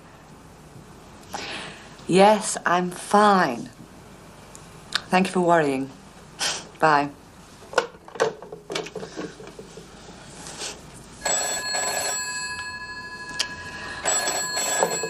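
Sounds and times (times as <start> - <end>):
telephone bell ringing: 11.2 - 15.0
telephone handset clacking down: 14.1 - 15.0.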